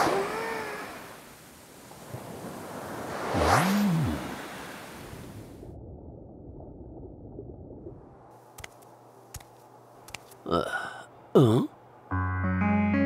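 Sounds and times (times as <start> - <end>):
ocean-like noise wash: 0.0 - 8.4.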